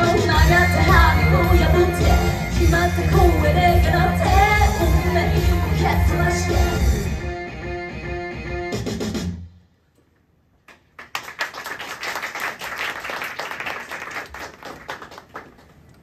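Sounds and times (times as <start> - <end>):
song music: 0.0 - 9.5
audience clapping: 10.6 - 16.0.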